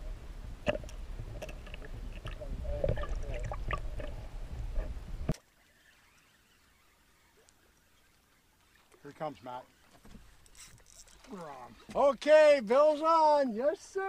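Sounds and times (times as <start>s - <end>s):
muffled underwater gurgling: 1.2s - 5.3s.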